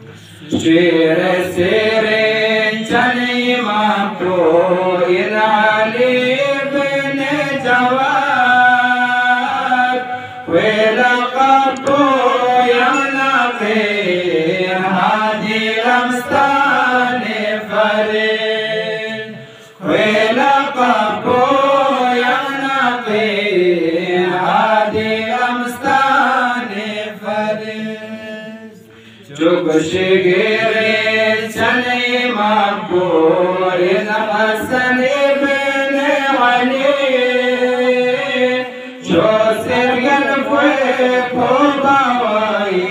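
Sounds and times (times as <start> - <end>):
man chanting: 19.8 - 42.9.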